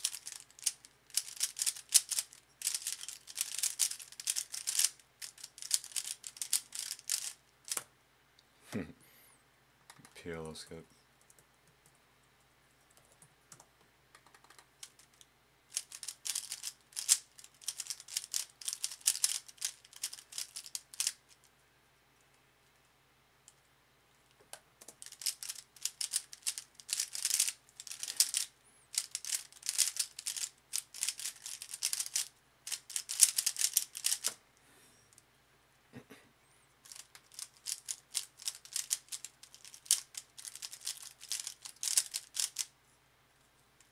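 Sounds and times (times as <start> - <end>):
puzzle cube clicking: 0.0 - 7.9, 14.2 - 21.3, 24.5 - 34.4, 36.9 - 42.7.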